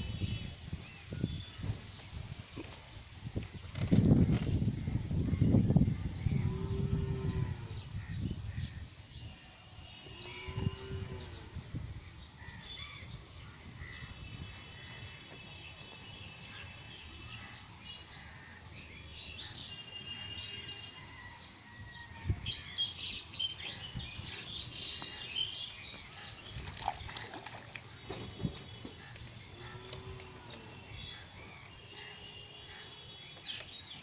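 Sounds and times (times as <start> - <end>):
birds chirping and trilling: 0.0 - 34.0
fish splashing in water: 26.4 - 28.4.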